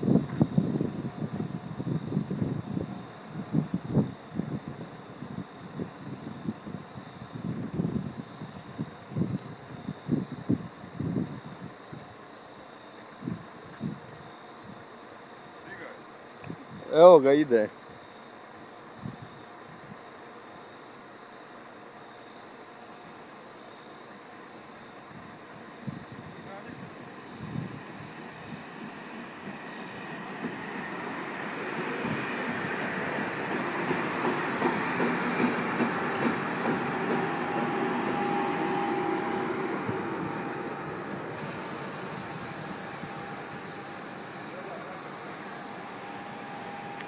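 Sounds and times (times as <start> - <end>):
cricket chirping: 0.0 - 47.0
electric train rolling past: 0.0 - 47.0
thin steady whine: 36.8 - 47.0.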